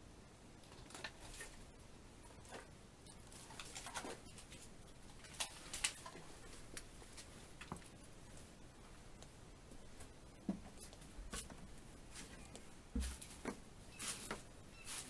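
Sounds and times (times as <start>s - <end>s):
footsteps crunching over debris: 9.9s - 15.0s.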